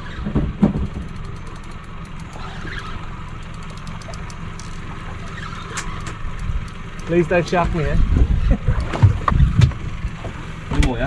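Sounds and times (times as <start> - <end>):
outboard motor idling: 0.0 - 11.0
spinning reel ticking: 1.0 - 4.8.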